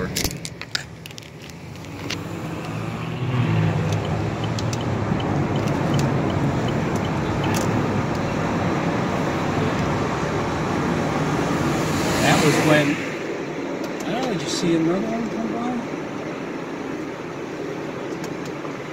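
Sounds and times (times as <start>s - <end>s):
car traffic noise: 0.0s - 18.9s
helicopter drone: 10.4s - 18.9s.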